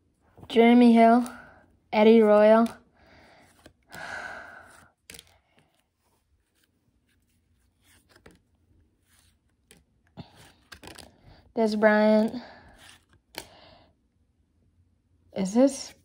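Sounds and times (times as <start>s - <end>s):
cards sliding with paper rustles: 2.1s - 3.8s, 4.7s - 11.2s, 12.8s - 13.4s.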